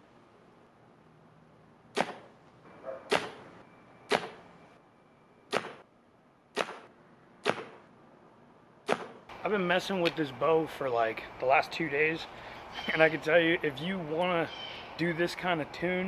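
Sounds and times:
arrow striking target: 1.9 - 2.3, 3.1 - 3.4, 4.1 - 4.4, 5.5 - 5.8, 6.5 - 7.9, 8.8 - 9.2.

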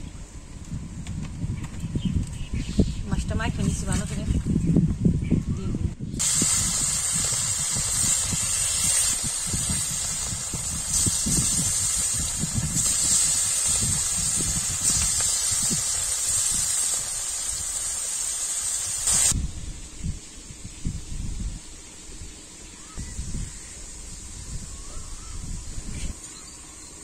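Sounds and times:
fish sizzling in hot oil: 6.2 - 19.4.

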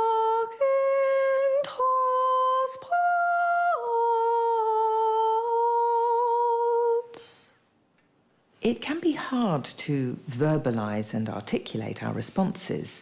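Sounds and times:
woman singing wordless held notes: 0.0 - 7.6.

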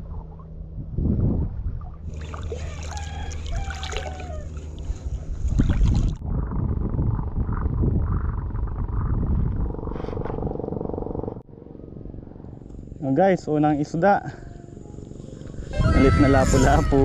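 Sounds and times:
wind rumble on microphone: 0.0 - 11.5, 14.9 - 17.0
water sloshing around legs: 2.0 - 6.2.

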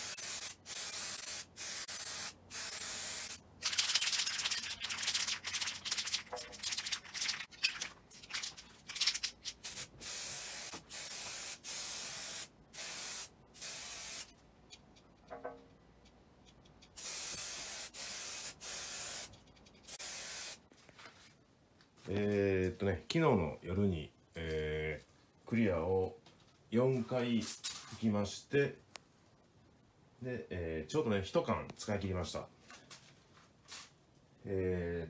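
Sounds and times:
aerosol spray can hissing: 0.0 - 4.2, 9.6 - 14.3, 17.0 - 20.6.

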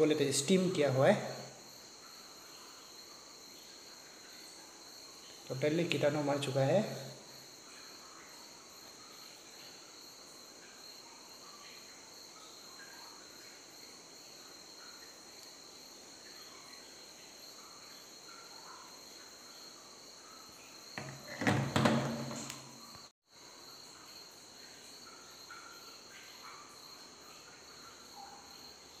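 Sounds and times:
insects chirring: 0.0 - 29.0.

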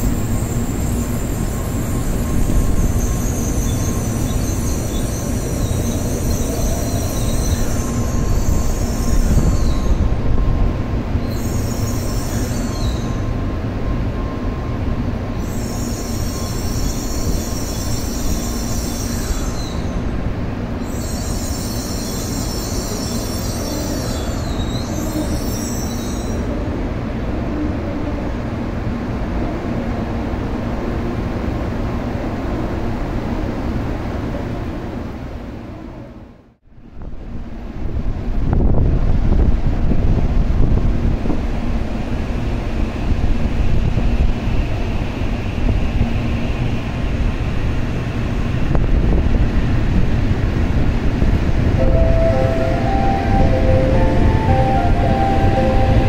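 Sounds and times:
train low rumble: 0.0 - 56.0
high-pitched noise: 51.8 - 56.0.

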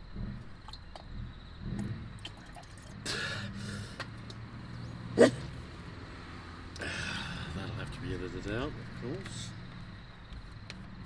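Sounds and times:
water trickling into metal cup: 2.2 - 3.1.

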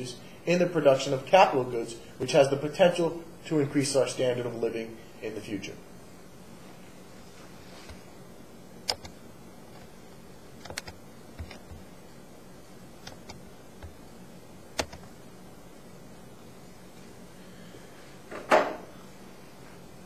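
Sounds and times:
computer keys and mouse clicks: 8.8 - 9.2, 10.6 - 11.8, 13.0 - 14.0, 14.8 - 15.1.

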